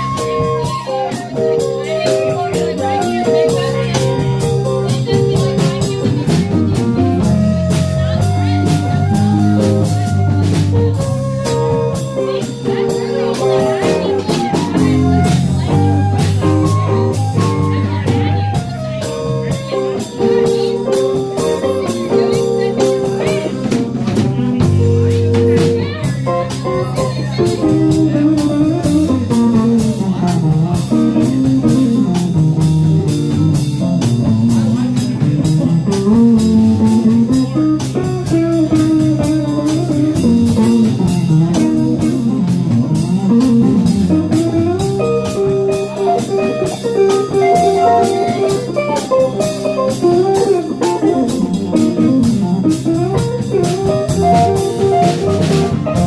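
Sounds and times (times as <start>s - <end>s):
bass guitar: 0.0s - 56.0s
drum kit cymbals: 0.0s - 56.0s
lead instrument melody: 0.0s - 56.0s.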